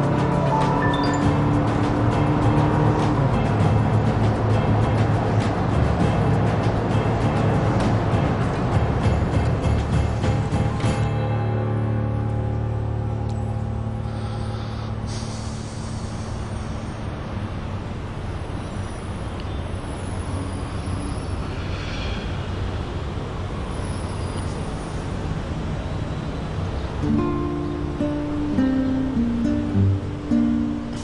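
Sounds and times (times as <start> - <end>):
low music cue: 0.0 - 15.0
road traffic rushing: 0.0 - 31.0.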